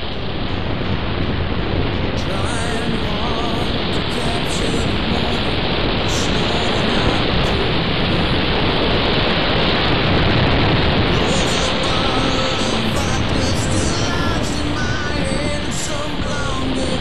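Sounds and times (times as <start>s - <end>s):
faint music: 0.0s - 17.0s
wind rushing over microphone: 0.0s - 17.0s.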